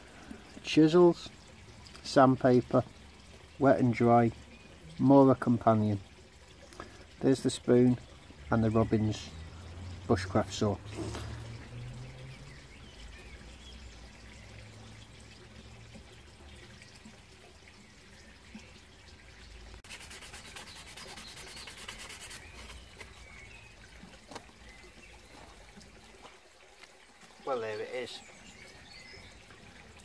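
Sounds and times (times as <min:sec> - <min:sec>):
sandpaper rubbing on wood: 0:19.8 - 0:22.8
light scratching: 0:19.8 - 0:23.2.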